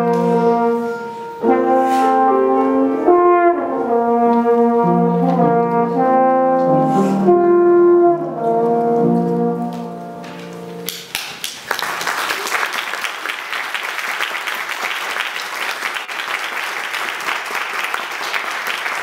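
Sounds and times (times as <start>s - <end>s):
french horn and piano note: 0.0s - 10.9s
audience applauding: 10.9s - 19.0s.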